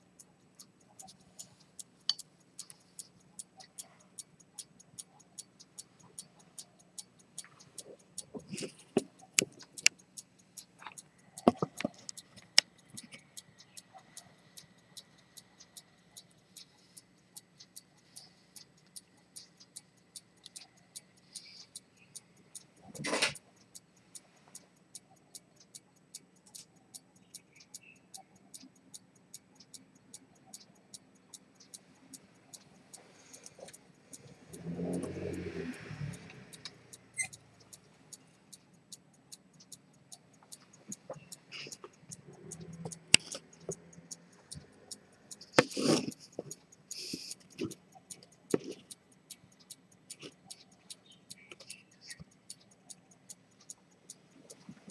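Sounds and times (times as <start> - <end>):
pocket watch ticking: 0.0 - 54.9.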